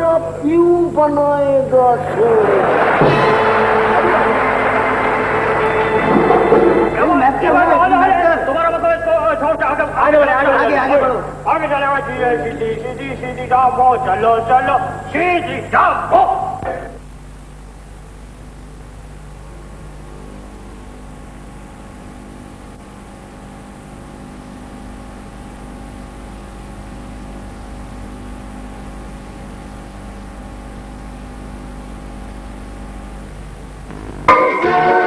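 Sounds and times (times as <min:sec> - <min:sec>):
tape hum and hiss: 0:00.0 - 0:35.0
loud music: 0:02.9 - 0:07.4, 0:33.9 - 0:35.0.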